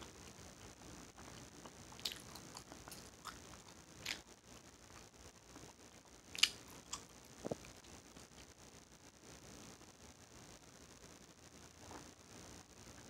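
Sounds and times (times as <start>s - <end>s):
wet gum chewing smacks: 1.2s - 4.2s, 6.4s - 7.7s.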